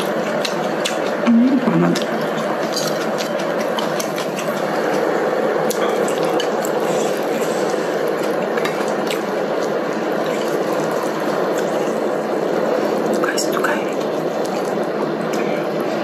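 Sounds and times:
broth boiling and bubbling: 0.0 - 16.0.

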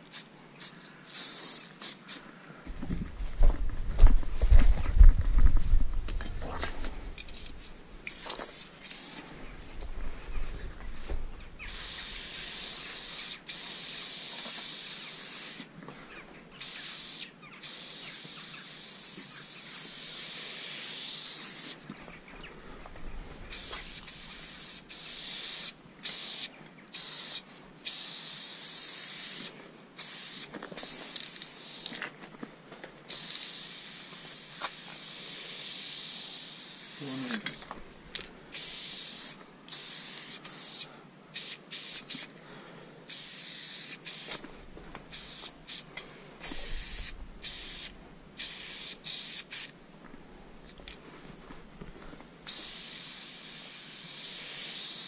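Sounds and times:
spray-paint cans hissing: 0.0 - 2.2, 7.2 - 9.3, 11.6 - 15.7, 16.6 - 21.8, 23.5 - 32.0, 33.1 - 37.5, 38.2 - 42.3, 43.1 - 44.4, 45.1 - 49.7, 52.4 - 55.0.

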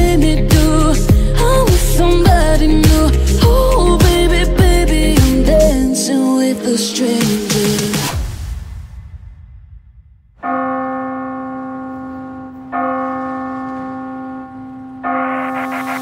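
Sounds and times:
backing music: 0.0 - 6.0
deep church bell tolling: 10.4 - 16.0.

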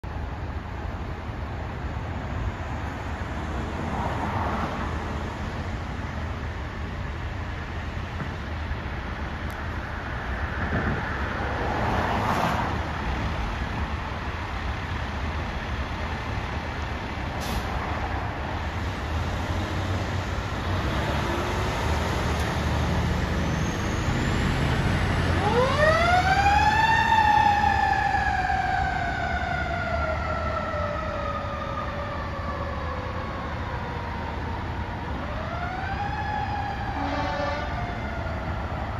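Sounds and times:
fire engine motor rumbling: 0.0 - 11.9, 12.6 - 38.9
siren wailing: 25.3 - 38.9.

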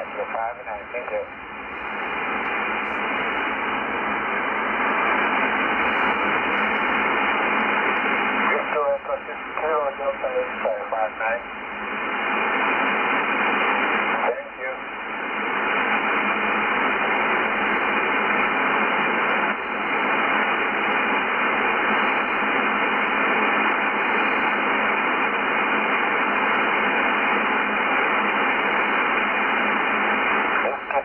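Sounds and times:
shortwave radio hiss: 0.0 - 31.0.

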